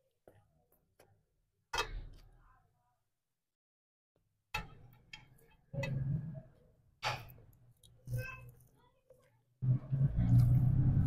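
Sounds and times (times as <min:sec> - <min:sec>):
chewing: 0:10.0 - 0:11.0.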